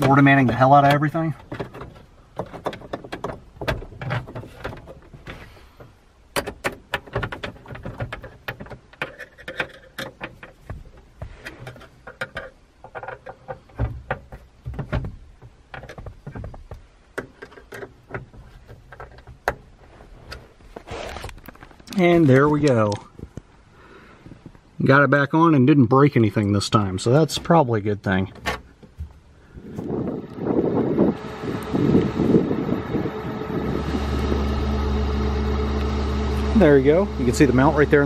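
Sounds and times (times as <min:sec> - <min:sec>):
plastic fittings clicking and knocking: 0:00.0 - 0:19.7
rustling: 0:06.8 - 0:24.6.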